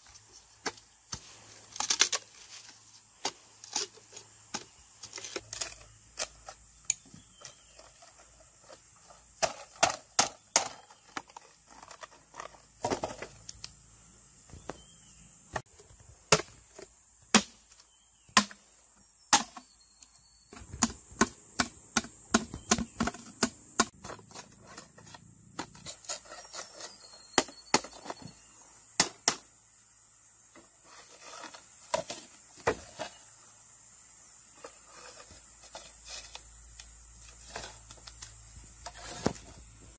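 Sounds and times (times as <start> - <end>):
machete splitting bamboo: 17.3 - 17.8, 18.4 - 18.6
bamboo tubes knocking together: 20.5 - 24.4.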